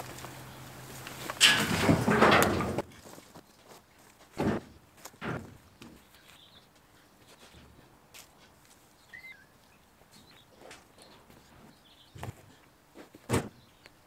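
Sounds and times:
footsteps on grass: 0.0 - 1.4, 2.8 - 9.0
soft thuds with rustle: 4.3 - 6.0, 12.2 - 13.6
bird chirping: 5.6 - 7.7, 8.9 - 12.3.

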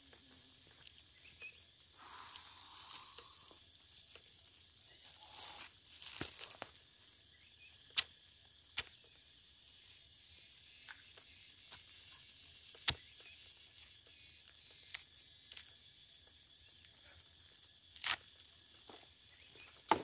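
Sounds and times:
wood crackling and tearing: 2.0 - 7.2, 17.8 - 18.6.

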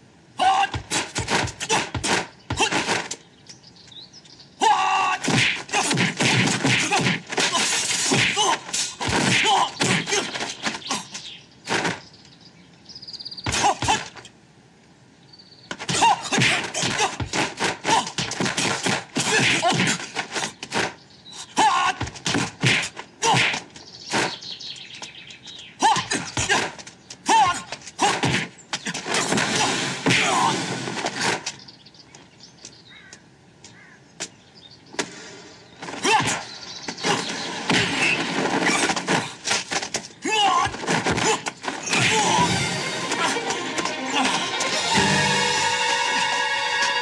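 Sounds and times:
punches and blocks landing: 0.5 - 3.2, 5.2 - 11.1, 11.7 - 12.0, 13.5 - 14.2, 15.7 - 21.0, 21.7 - 24.4, 25.9 - 31.6, 35.8 - 43.3
faint bird chirps: 9.5 - 13.5.

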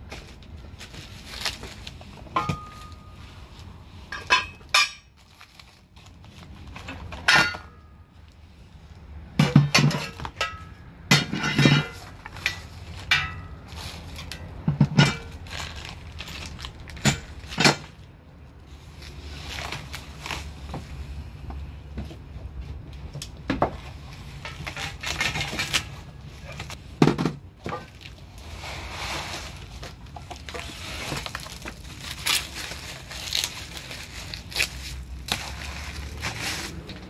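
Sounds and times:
steel parts clinking and knocking: 4.1 - 5.1, 9.4 - 13.6
plastic wrapping crinkling: 5.1 - 6.8, 15.4 - 17.0, 27.9 - 37.0.

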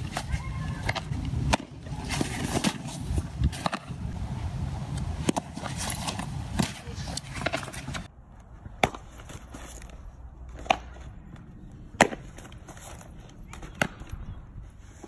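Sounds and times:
outdoor noise: 0.0 - 15.0.

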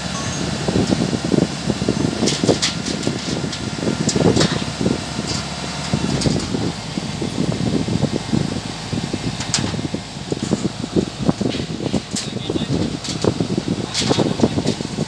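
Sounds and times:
combine harvester engine running: 0.0 - 15.0
metallic clicks and clanks: 13.9 - 14.8.

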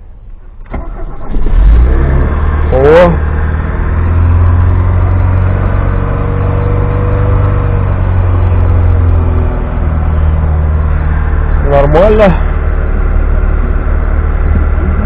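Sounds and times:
car engine fast idle: 0.6 - 1.5.

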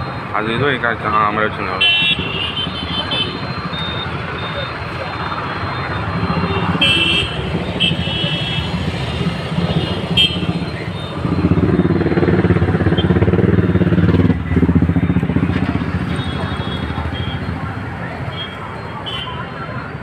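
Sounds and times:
motorcycle engines running: 0.0 - 20.0
loud engine passing close: 3.3 - 18.4.

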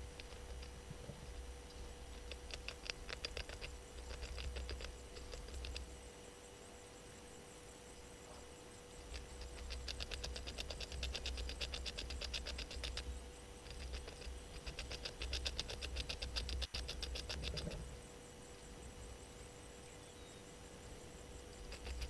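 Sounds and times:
animal rapid ticking call: 0.0 - 5.9, 8.9 - 18.0, 21.4 - 22.0
steady low hum: 0.0 - 22.0.

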